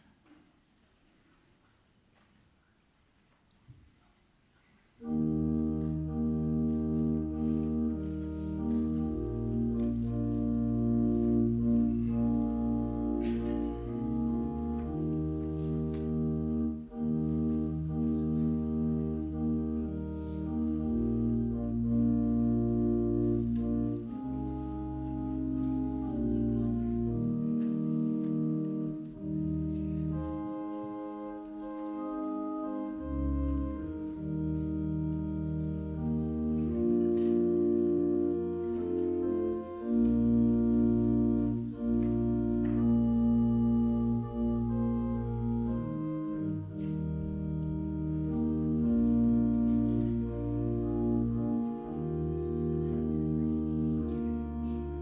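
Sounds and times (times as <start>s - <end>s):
slow organ music: 5.0s - 55.0s.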